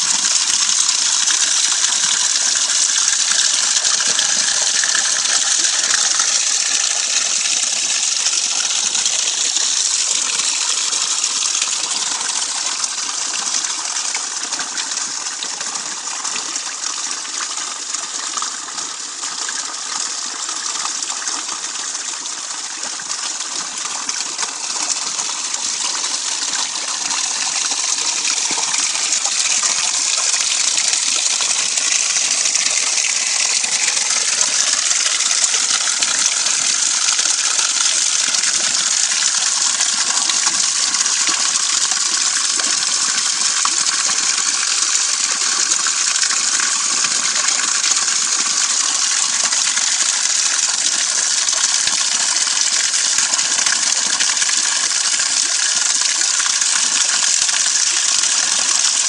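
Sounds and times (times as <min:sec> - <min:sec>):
fountain water gushing and splashing: 0:00.0 - 0:59.0.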